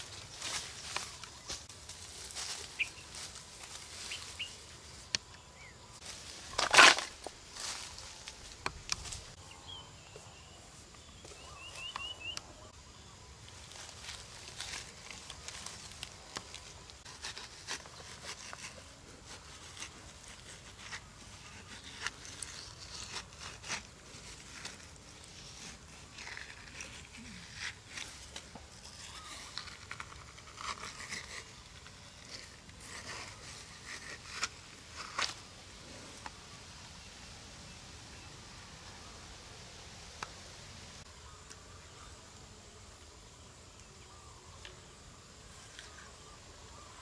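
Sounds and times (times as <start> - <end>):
stick scraping watermelon flesh: 6.5 - 7.2, 16.4 - 35.5.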